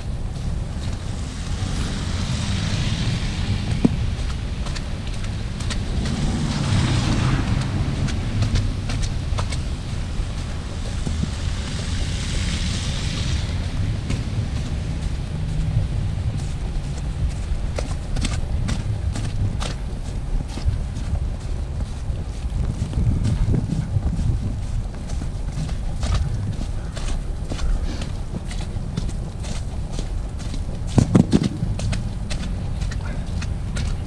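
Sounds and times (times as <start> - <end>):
footsteps in snow: 0.0 - 34.0
wind rumbling on microphone: 0.0 - 34.0
wet tyres hissing past: 1.0 - 4.6, 5.8 - 13.8.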